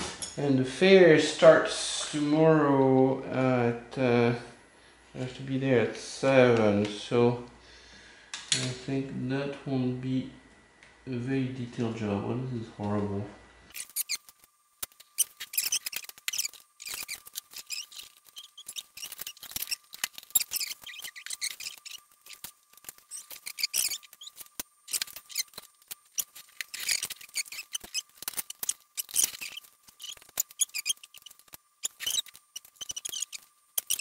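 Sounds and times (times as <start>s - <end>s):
hands handling masking tape: 13.8s - 34.0s.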